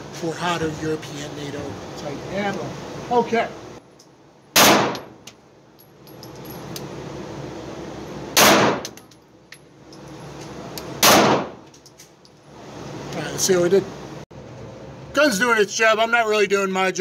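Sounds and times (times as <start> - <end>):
pistol shots with ringing echo: 4.6 - 5.2, 8.4 - 9.0, 11.0 - 11.6.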